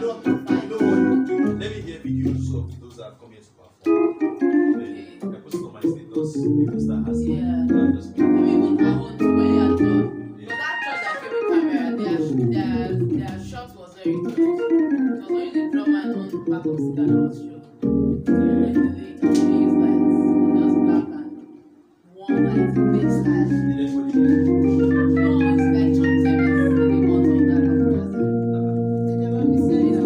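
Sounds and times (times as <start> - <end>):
keyboard playing organ sound: 0.0 - 2.8, 3.8 - 13.3, 14.0 - 30.0.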